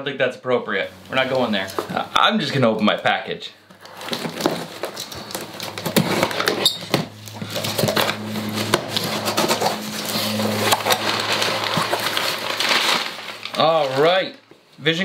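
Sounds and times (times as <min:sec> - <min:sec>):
packing paper rustling and crackling: 0:03.7 - 0:14.6
steady low hum: 0:05.2 - 0:13.6.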